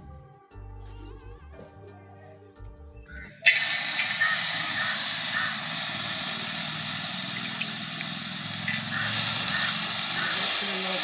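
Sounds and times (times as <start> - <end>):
prawns sizzling in a pan: 3.4 - 11.0.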